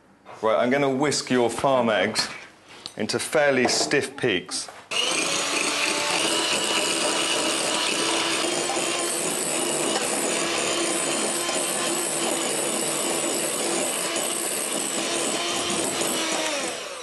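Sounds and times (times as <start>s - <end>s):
electric mixer whirring: 4.9s - 17.0s.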